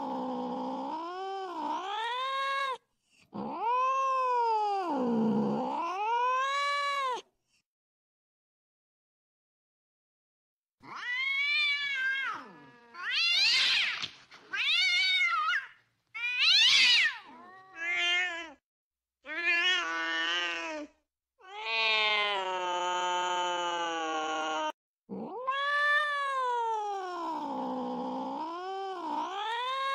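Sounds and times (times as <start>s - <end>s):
cat yowling: 3.4s - 5.0s, 10.8s - 18.6s, 19.3s - 27.4s.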